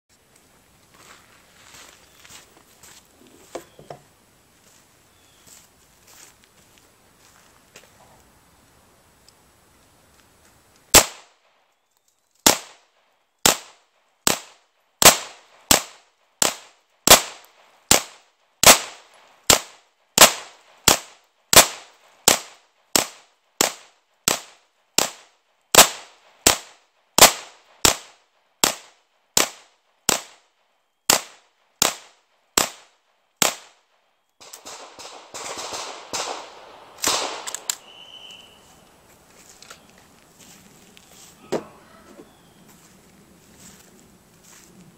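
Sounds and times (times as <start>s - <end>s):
pistol shots with echo: 10.9s - 11.4s, 12.4s - 25.2s, 34.4s - 38.4s.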